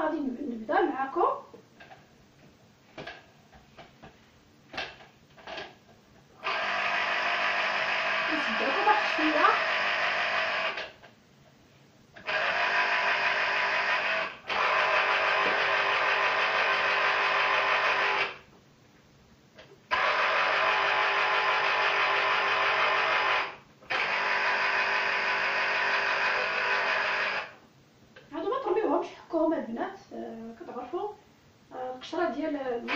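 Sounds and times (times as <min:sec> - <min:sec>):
juicer motor whirring: 0:06.4 - 0:11.0, 0:12.2 - 0:18.4, 0:19.9 - 0:27.6.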